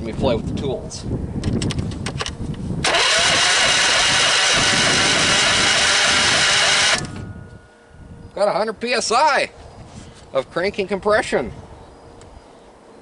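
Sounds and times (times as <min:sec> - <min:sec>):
engine cranking without starting: 0:02.8 - 0:07.2.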